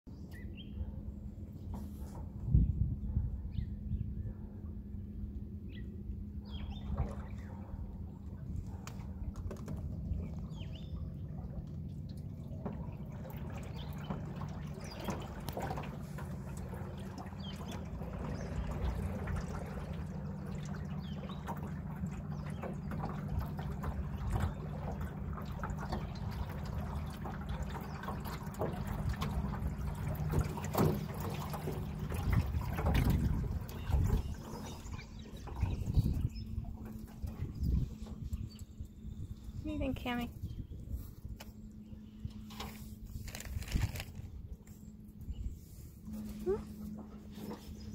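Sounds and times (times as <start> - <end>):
steady low hum: 0.1 - 47.9
water lapping against boat: 0.1 - 47.9
small splashes and drips: 6.4 - 39.4.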